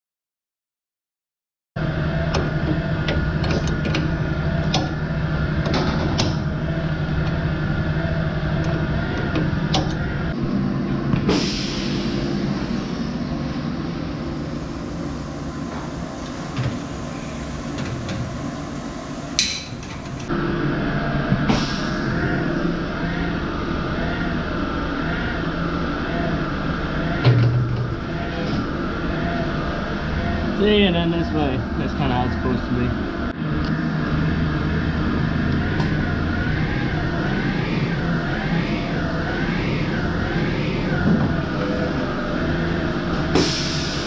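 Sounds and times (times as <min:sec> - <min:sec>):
machinery humming: 0:01.8 - 0:44.0
machine hissing: 0:11.3 - 0:13.8, 0:21.4 - 0:22.8, 0:43.3 - 0:44.0.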